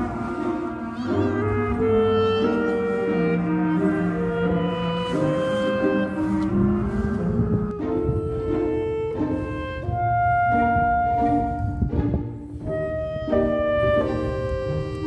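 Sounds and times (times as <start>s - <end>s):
slow instrumental melody: 0.0s - 15.0s.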